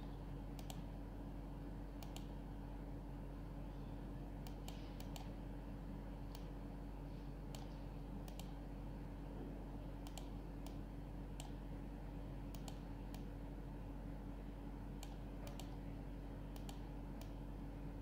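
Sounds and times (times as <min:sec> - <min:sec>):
mouse buttons clicking: 0:04.4 - 0:05.3, 0:10.0 - 0:10.8, 0:12.5 - 0:13.3, 0:15.0 - 0:15.8, 0:16.6 - 0:17.4.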